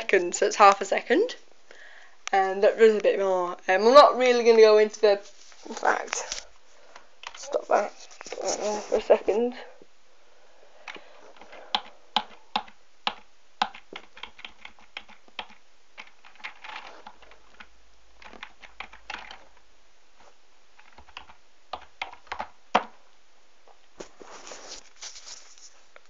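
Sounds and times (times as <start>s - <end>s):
typing on a keyboard: 10.9s - 19.4s, 20.8s - 22.9s.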